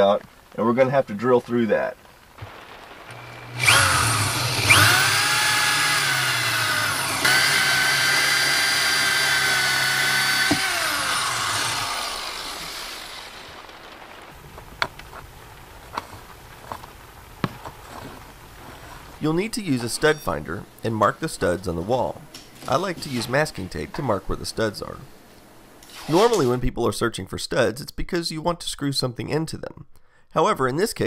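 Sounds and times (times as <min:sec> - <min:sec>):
electric drill whining: 0:03.1 - 0:14.0.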